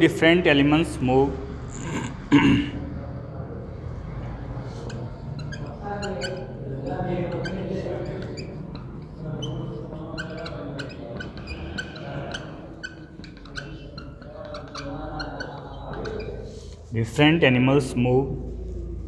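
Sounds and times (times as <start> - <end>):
marker squeaking on whiteboard: 3.7 - 17.5.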